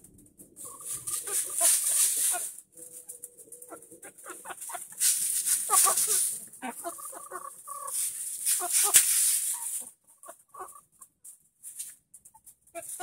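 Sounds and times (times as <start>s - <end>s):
hens clucking softly: 0.4s - 11.2s.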